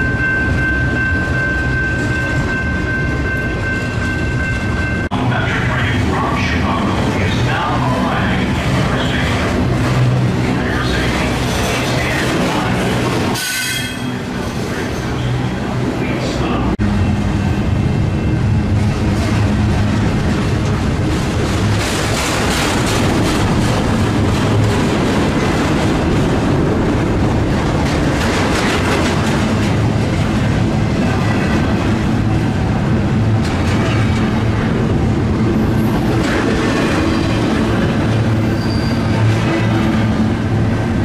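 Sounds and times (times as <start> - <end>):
train rumbling past: 0.0 - 41.0
wheel clatter over rail joints: 19.2 - 32.1.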